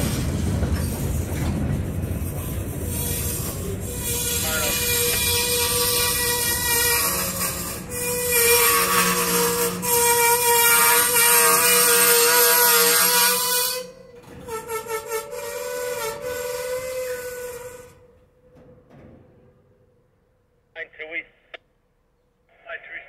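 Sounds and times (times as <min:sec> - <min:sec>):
train wheels squealing: 0:02.4 - 0:18.1.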